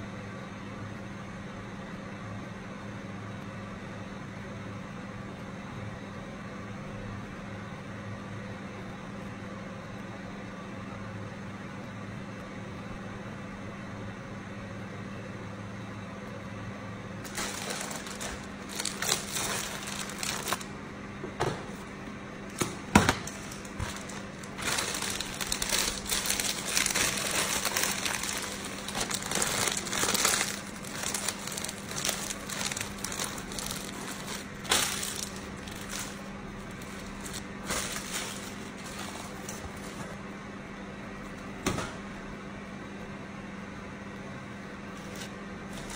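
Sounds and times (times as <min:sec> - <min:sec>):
steady low hum: 0:00.0 - 0:45.9
plastic crinkling and rustling: 0:17.2 - 0:20.7, 0:22.5 - 0:40.2, 0:45.0 - 0:45.9.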